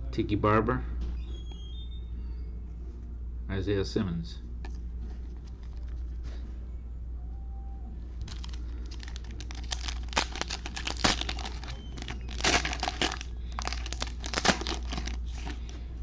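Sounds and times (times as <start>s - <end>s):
foil wrapper crinkling: 8.2s - 15.8s.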